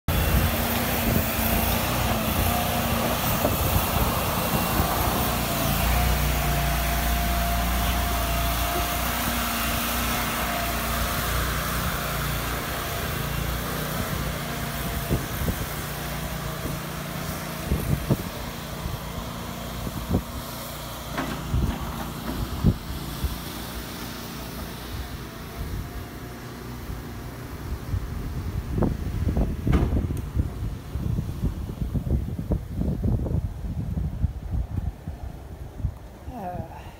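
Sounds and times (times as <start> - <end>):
small engine running: 0.1 - 32.0.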